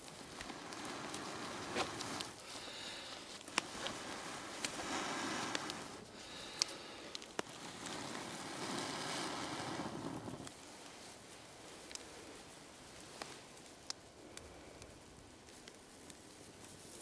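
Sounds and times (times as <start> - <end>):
breaths blown into dry grass: 0.0 - 12.5.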